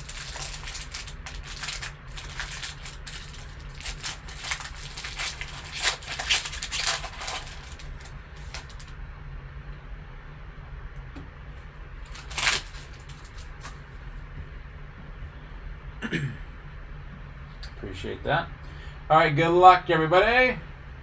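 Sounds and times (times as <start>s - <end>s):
foil wrapper crinkling and tearing: 0.0s - 9.0s, 12.0s - 13.8s.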